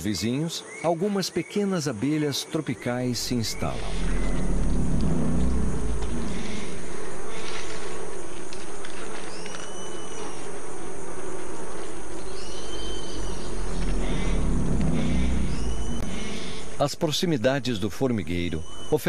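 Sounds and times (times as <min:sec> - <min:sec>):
insects buzzing and chirping: 0:00.0 - 0:19.0
high rising and falling call: 0:03.1 - 0:07.4, 0:12.4 - 0:16.8.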